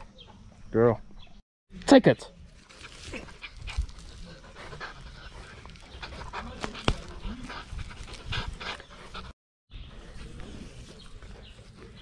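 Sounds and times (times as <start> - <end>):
puppy panting: 2.9 - 9.4.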